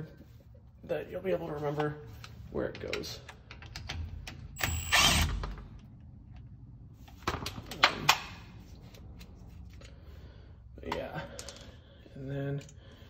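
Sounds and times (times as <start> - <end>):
impact wrench running: 4.6 - 5.5.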